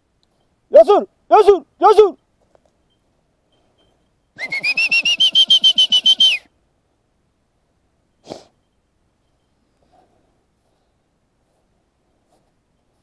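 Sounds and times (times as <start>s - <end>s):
whistle trill: 3.8s - 6.5s.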